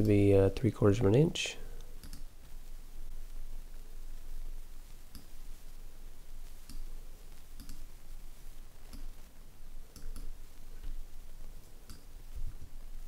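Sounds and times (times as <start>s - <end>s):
faint steady hiss: 0.0s - 13.0s
computer mouse clicks: 2.0s - 2.3s, 5.1s - 5.3s, 7.6s - 7.8s, 9.9s - 10.3s, 11.9s - 12.1s.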